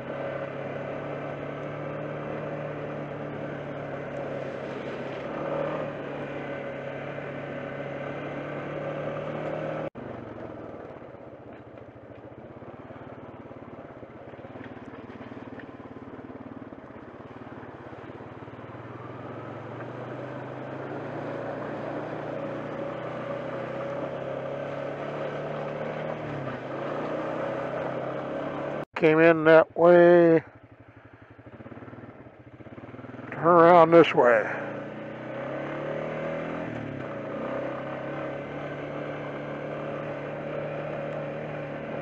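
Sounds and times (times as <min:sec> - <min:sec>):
atv engine running: 0:00.0 - 0:42.0.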